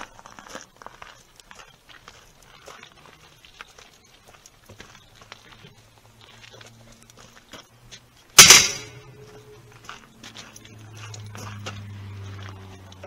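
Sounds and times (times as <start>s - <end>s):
footsteps crunching on gravel: 0.0s - 13.0s.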